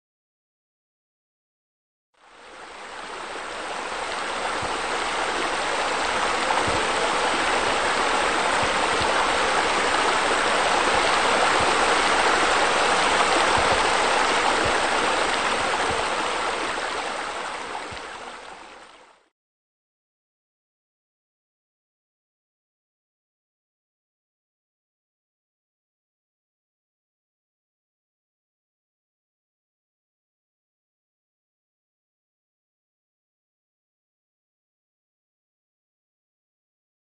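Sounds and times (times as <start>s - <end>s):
running water rushing: 2.2s - 19.3s.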